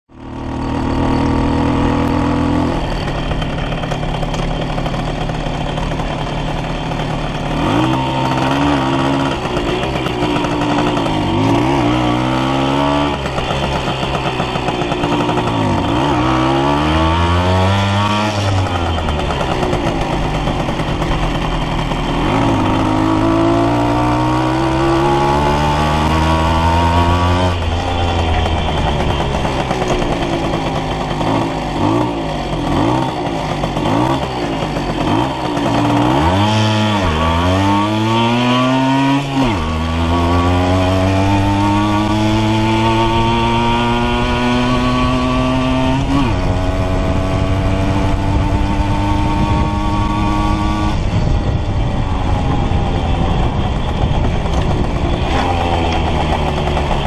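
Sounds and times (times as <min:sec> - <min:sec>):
moped engine accelerating: 0:00.1 - 0:57.0.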